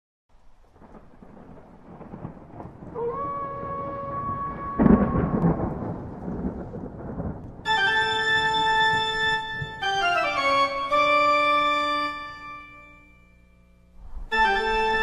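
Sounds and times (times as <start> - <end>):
rain: 0.3 - 12.4, 14.0 - 15.0
thunder rumbling: 0.4 - 11.0, 14.0 - 15.0
loud thunderclap: 0.8 - 8.0
held musical tone: 7.7 - 15.0
sustained organ chord: 7.7 - 15.0.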